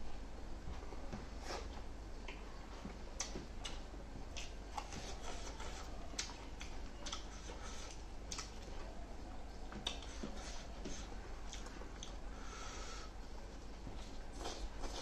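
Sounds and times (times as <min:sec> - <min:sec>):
low steady hum: 0:00.0 - 0:15.0
chewing lip smacks: 0:03.2 - 0:08.9, 0:09.7 - 0:10.4.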